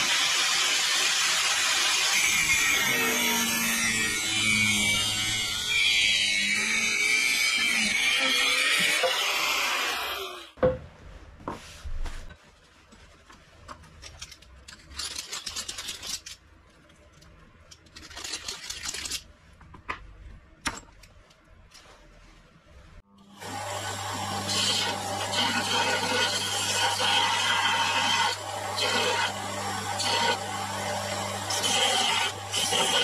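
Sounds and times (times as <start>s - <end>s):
power tool running: 23.2s - 33.0s.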